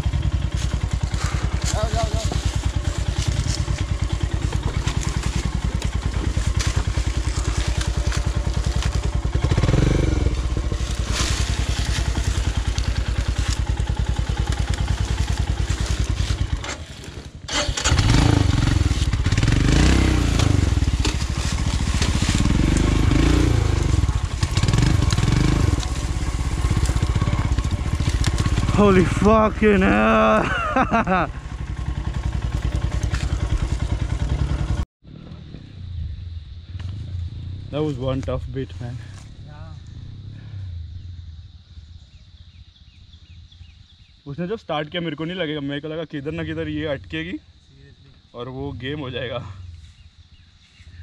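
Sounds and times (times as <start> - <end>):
motorcycle engine thudding: 0.0 - 29.4, 30.7 - 34.8.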